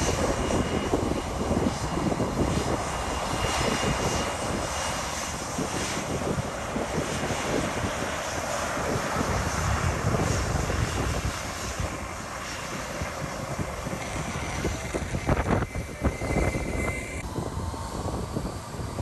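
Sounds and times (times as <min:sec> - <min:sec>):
jet engines running: 0:00.0 - 0:19.0
wind buffeting microphone: 0:00.0 - 0:19.0
thin whine: 0:11.5 - 0:19.0.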